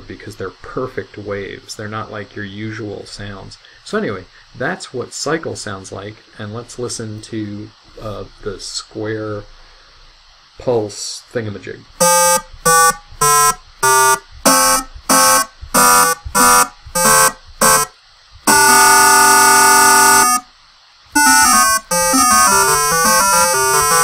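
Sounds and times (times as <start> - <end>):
square-wave synth notes: 12.0 - 17.9, 18.5 - 20.5, 21.2 - 24.0.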